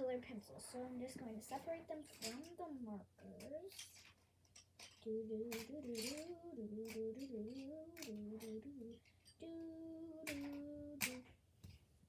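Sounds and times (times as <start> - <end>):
clicks of pencils being handled: 1.5 - 2.6, 3.3 - 9.4, 10.2 - 11.8
girl humming a tune: 5.1 - 11.3.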